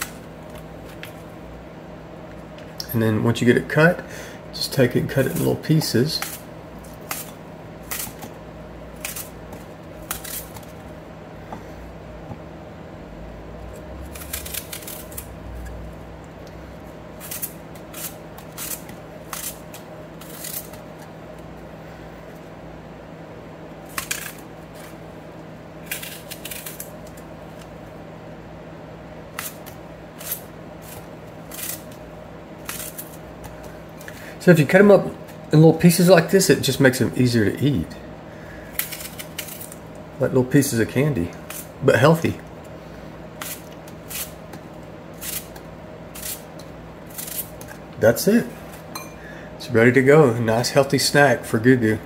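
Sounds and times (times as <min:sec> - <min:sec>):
faint steady hum: 0:00.0 - 0:52.0
knife cutting apple: 0:04.8 - 0:10.9, 0:13.6 - 0:15.8, 0:17.0 - 0:21.5, 0:23.8 - 0:25.0, 0:25.7 - 0:27.7, 0:29.3 - 0:34.2, 0:38.6 - 0:39.8, 0:43.4 - 0:47.8.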